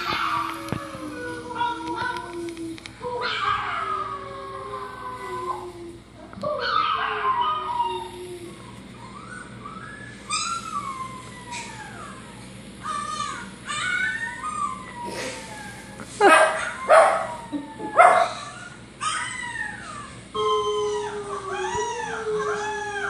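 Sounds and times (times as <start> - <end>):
puppy whining and howling: 0.0 - 23.0
dog barking: 16.2 - 17.3.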